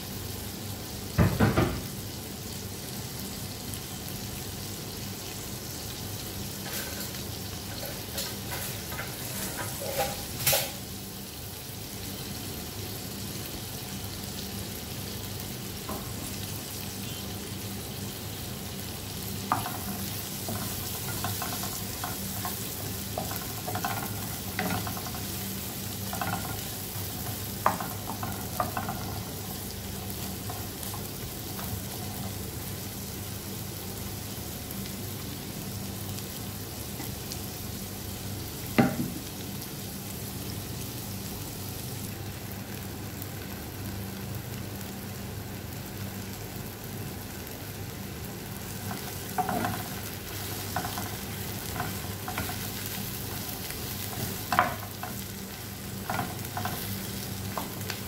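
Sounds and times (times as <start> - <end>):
onion and garlic sizzling in pan: 0.0 - 58.0
wooden spatula scraping a pan: 6.7 - 10.4.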